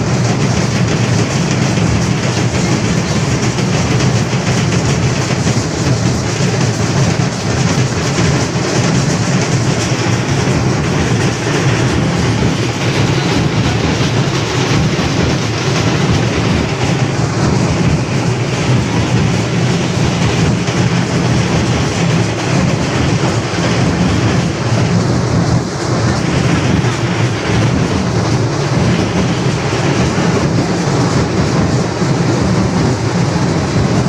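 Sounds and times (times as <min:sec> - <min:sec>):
large outdoor crowd din: 0:00.0 - 0:34.0
low rumble: 0:00.0 - 0:34.0.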